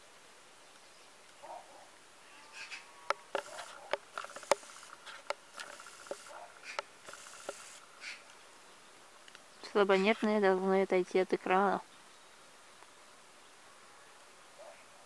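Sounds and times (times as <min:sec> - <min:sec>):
faint steady buzz: 0:00.0 - 0:15.0.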